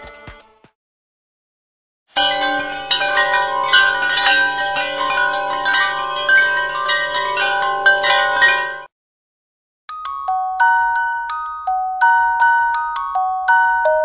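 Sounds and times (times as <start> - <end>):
chime-like music over drone: 2.2 - 8.9, 9.9 - 14.0.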